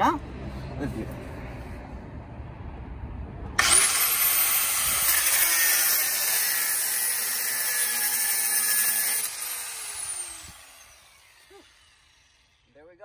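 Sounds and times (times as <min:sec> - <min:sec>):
angle grinder cutting steel: 0:03.6 - 0:12.7.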